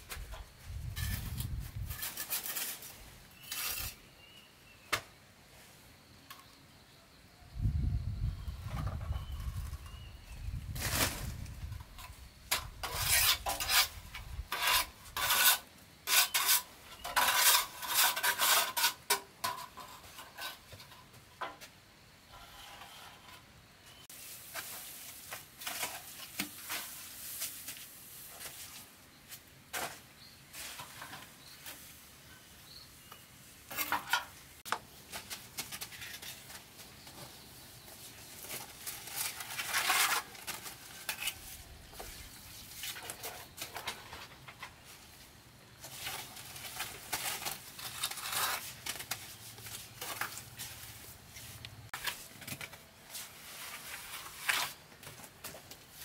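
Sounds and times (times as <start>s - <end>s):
trowel scraping wet mortar: 1.0s - 4.0s, 12.5s - 20.6s, 39.2s - 42.2s, 46.8s - 48.8s, 53.2s - 54.8s.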